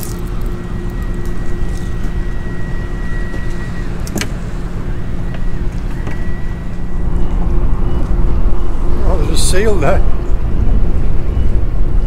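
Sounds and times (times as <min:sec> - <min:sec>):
outboard motor idling: 0:00.0 - 0:09.9.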